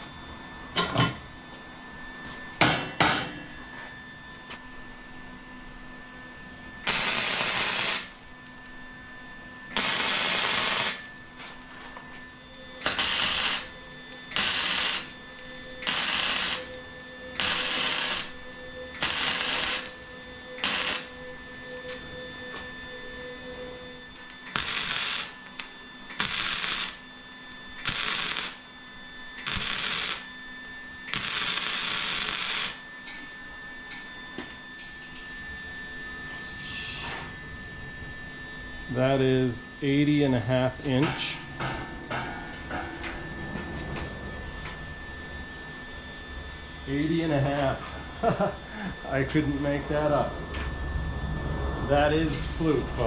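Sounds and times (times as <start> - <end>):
arc welding hiss: 6.8 - 8.6, 9.7 - 11.2, 12.8 - 21.9, 24.2 - 28.6, 29.4 - 30.3, 31.0 - 32.8, 52.1 - 53.0.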